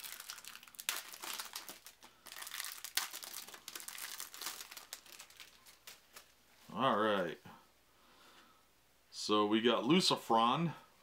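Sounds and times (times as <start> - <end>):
cellophane wrapping tearing and crinkling: 0.0 - 6.3.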